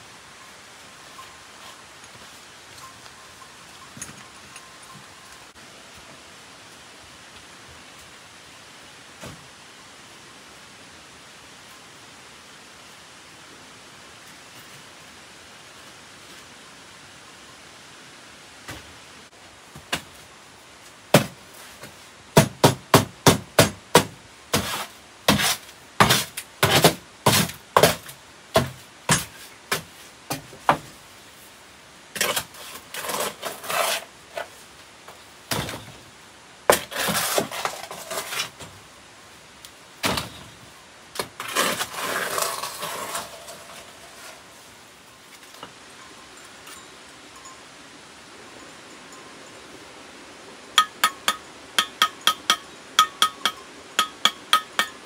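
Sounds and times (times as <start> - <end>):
scraping: 32.2 - 34.6, 36.7 - 38.7, 41.2 - 44.5
hand tool knocking: 50.8 - 55.0.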